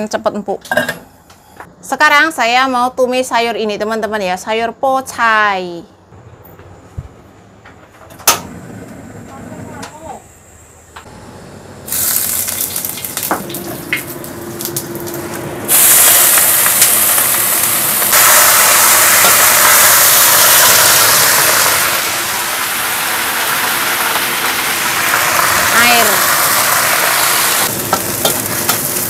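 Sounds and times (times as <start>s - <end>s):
vegetables sizzling in hot oil: 11.9s - 29.0s.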